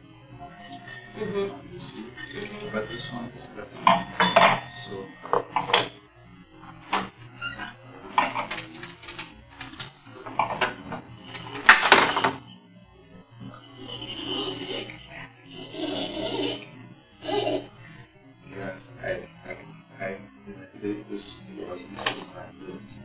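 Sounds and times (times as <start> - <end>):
corkscrew clinking on bottle: 2.2 - 3.0.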